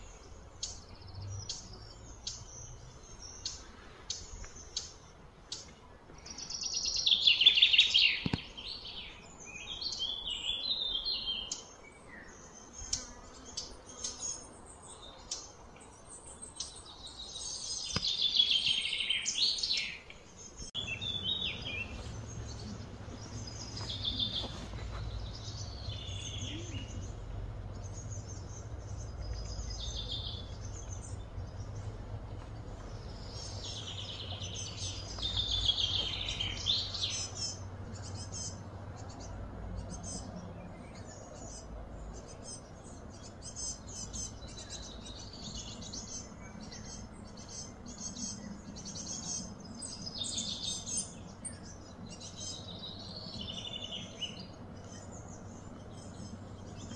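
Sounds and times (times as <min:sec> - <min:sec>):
birds chirping and calling: 0:00.0 - 0:56.9
low background hum: 0:20.1 - 0:56.9.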